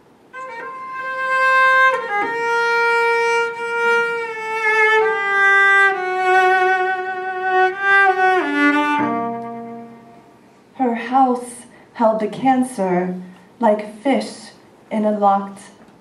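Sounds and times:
cello bowed in long notes: 0.4 - 10.4.

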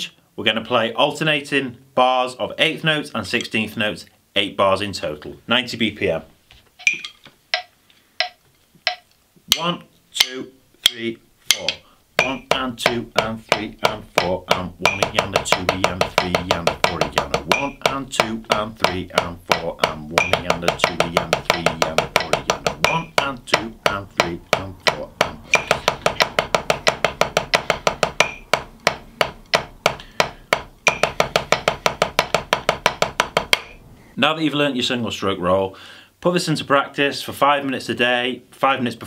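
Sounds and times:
drumsticks on practice pad: 6.7 - 33.9.

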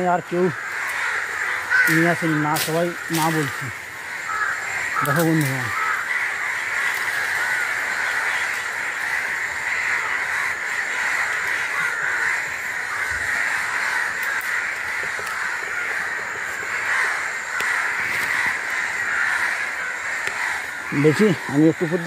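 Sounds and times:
insect chorus drone: 0.0 - 22.0.

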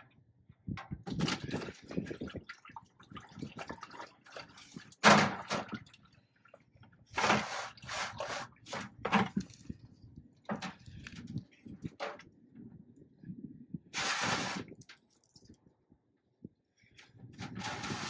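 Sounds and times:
buckets knocked and shifted: 0.7 - 2.5, 5.0 - 5.9, 7.1 - 9.8, 10.4 - 12.3
oil splashing into buckets: 1.1 - 9.8.

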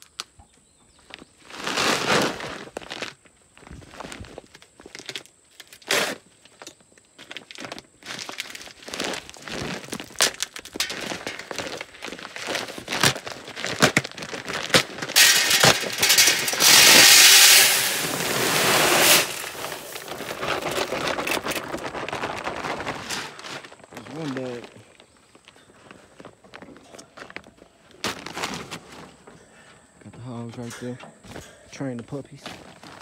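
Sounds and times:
paper bag crinkling: 7.3 - 25.1, 25.8 - 29.2
corn kernels pouring into barrel: 8.1 - 23.4.

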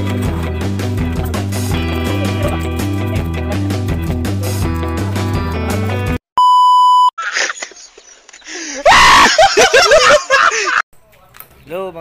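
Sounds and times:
background music: 0.0 - 6.2
steady beep: 6.4 - 7.1
man groaning and screaming: 8.8 - 9.4.

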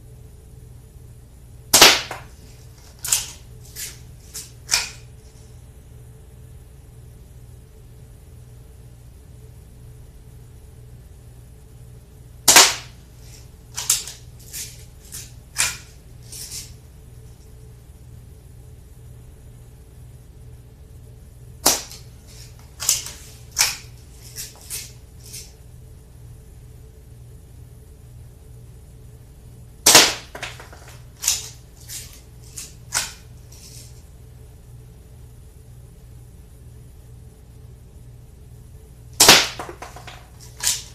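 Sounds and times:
air pistol shot crack: 1.8 - 2.3, 12.5 - 12.9, 21.6 - 22.0, 29.9 - 30.6, 39.2 - 39.8.

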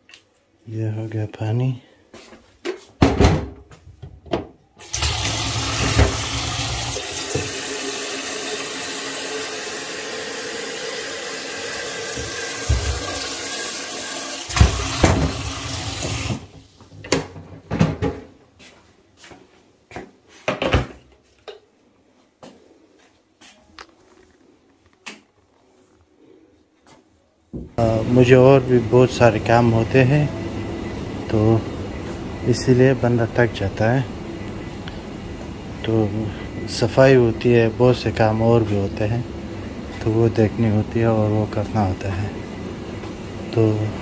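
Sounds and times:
tap running water into kettle: 4.8 - 16.7.

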